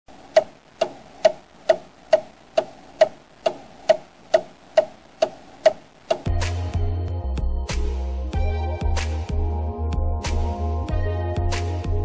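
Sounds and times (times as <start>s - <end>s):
clock-like ticking: 0.2s - 6.6s.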